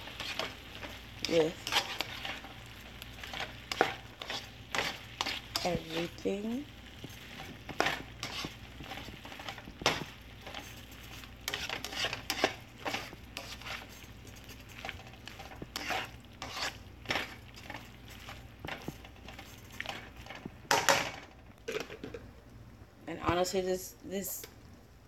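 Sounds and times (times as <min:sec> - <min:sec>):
utensil clacking and scraping wok: 0:00.0 - 0:22.2.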